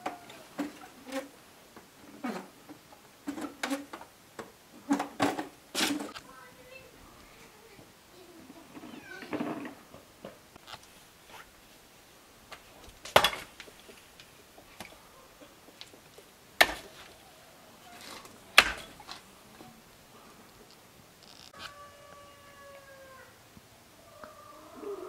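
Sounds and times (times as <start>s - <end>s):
axe chopping firewood: 13.0s - 13.7s, 16.6s - 17.1s, 18.5s - 19.1s.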